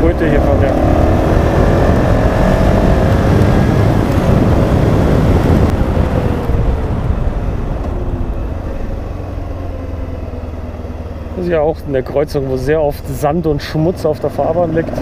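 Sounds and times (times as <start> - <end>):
wind rushing over microphone: 0.0 - 10.8
motorcycle engine running: 0.0 - 15.0.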